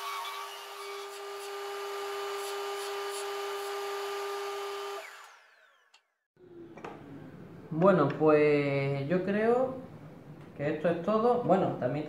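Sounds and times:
sander winding down: 0:03.6 - 0:06.1.

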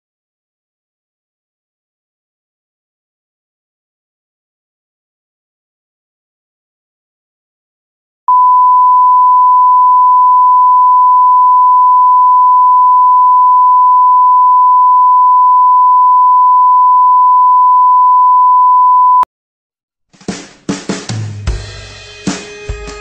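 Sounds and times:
steady pure test tone beep: 0:08.3 - 0:19.3.

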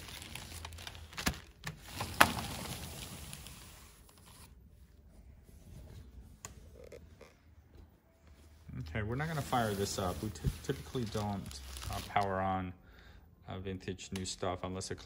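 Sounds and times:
plastic sheeting crinkling: 0:00.0 - 0:04.6, 0:09.0 - 0:12.4.

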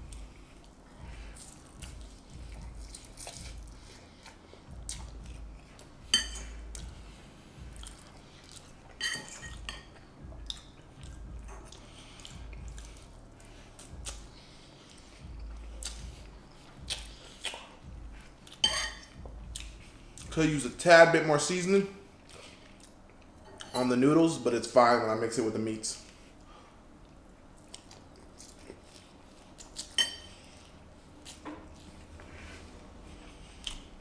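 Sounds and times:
chewing and mouth sounds: 0:00.0 - 0:20.7, 0:22.1 - 0:23.7, 0:26.1 - 0:34.0
fork clinking against bowl: 0:09.0 - 0:10.0, 0:18.6 - 0:19.1.

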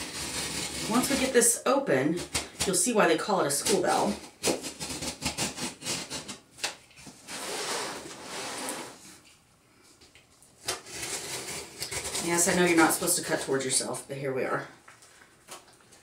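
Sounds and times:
box knife cutting packing tape: 0:00.0 - 0:01.3, 0:03.7 - 0:08.1, 0:10.6 - 0:12.5.

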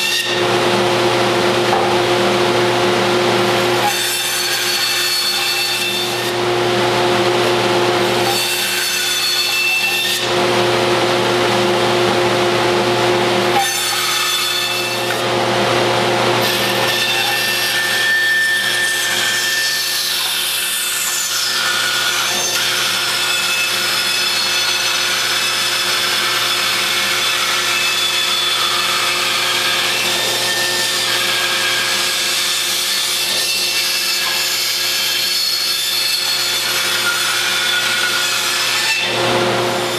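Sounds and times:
bandsaw motor hum: 0:00.0 - 0:39.9
saw blade rasping through wood: 0:08.0 - 0:10.3, 0:16.4 - 0:39.9.

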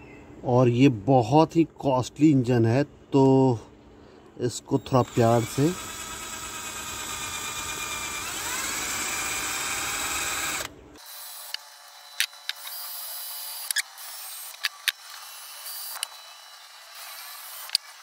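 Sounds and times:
cordless drill whining: 0:04.8 - 0:18.0
sharp clicks: 0:11.5 - 0:12.8.

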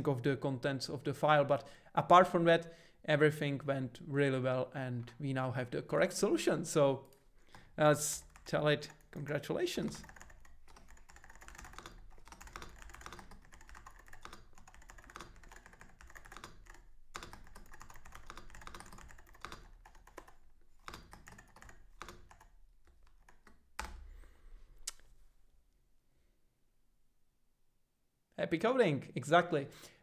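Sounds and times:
computer keyboard typing: 0:07.1 - 0:09.2, 0:09.8 - 0:24.1.

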